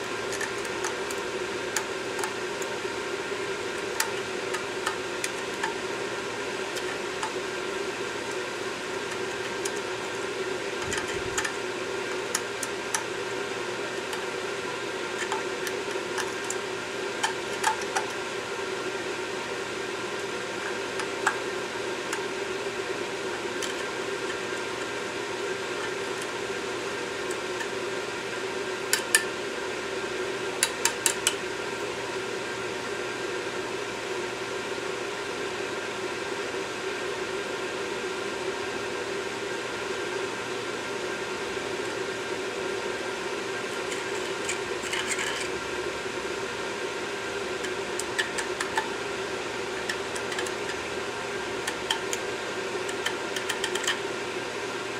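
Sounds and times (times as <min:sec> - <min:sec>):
fan-like hum: 0:00.0 - 0:54.9
hand tool clicking and scraping: 0:00.3 - 0:01.2, 0:15.2 - 0:16.6, 0:30.6 - 0:31.4, 0:43.8 - 0:45.6, 0:47.6 - 0:49.0, 0:49.7 - 0:51.0, 0:51.6 - 0:52.3, 0:52.9 - 0:54.0.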